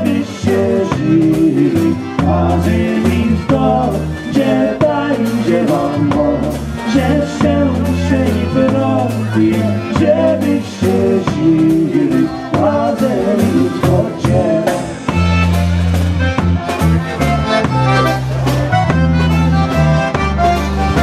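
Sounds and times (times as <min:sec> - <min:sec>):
men singing: 0:00.0 - 0:15.2
button concertina melody: 0:00.0 - 0:21.0
drum kit: 0:00.0 - 0:21.0
electric bass: 0:00.0 - 0:21.0.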